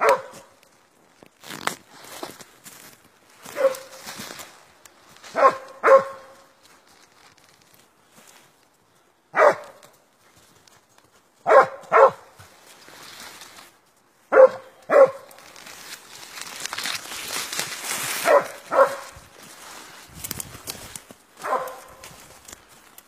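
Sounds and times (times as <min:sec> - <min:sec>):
dog barking: 0:00.0 - 0:00.4, 0:03.5 - 0:04.0, 0:05.3 - 0:06.5, 0:09.3 - 0:09.8, 0:11.4 - 0:12.3, 0:14.3 - 0:15.3, 0:18.2 - 0:19.2, 0:21.4 - 0:22.0
rustling: 0:00.4 - 0:08.7, 0:12.0 - 0:14.0, 0:14.9 - 0:23.0.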